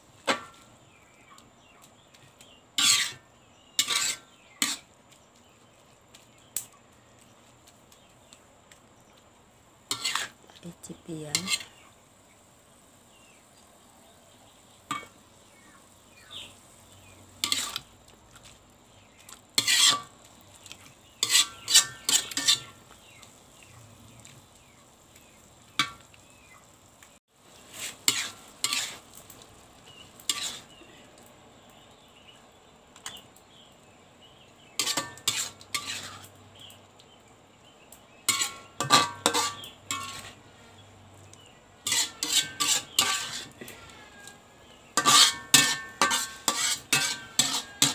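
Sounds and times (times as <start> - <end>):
faint sizzle: 0.0 - 47.9
utensil scraping a pan: 2.4 - 4.9, 9.9 - 10.5, 11.2 - 11.9, 17.4 - 18.5, 19.2 - 24.2, 27.6 - 29.1, 29.9 - 30.9, 34.7 - 36.3, 38.2 - 40.8, 41.8 - 47.9.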